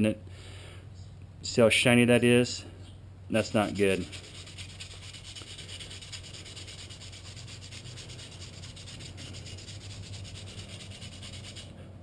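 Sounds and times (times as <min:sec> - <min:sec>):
sandpaper rubbing brake lining: 0:03.6 - 0:11.7.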